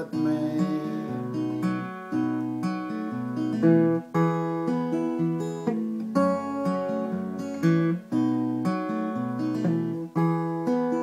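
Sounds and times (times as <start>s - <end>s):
acoustic guitar strumming chords: 0.0s - 11.0s.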